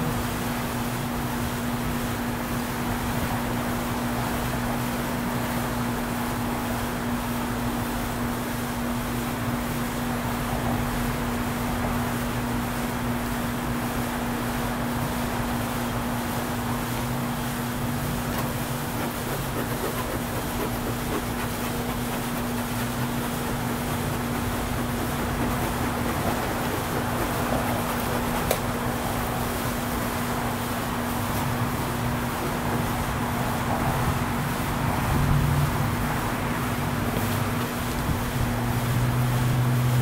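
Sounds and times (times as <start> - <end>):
honey bees buzzing: 18.1 - 29.8.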